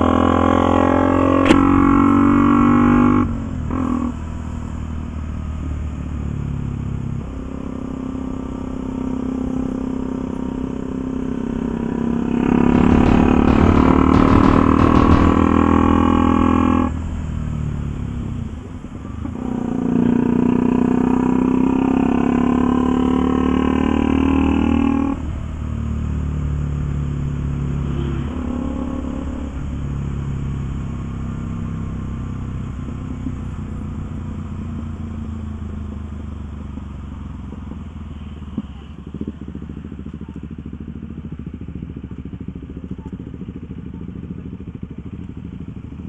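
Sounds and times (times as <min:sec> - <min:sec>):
motorcycle engine running: 0:00.0 - 0:46.0.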